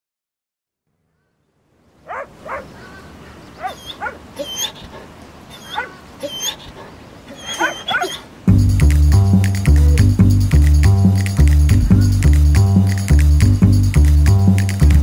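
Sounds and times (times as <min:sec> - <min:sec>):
small dog whining and yipping: 0:03.6 - 0:08.3.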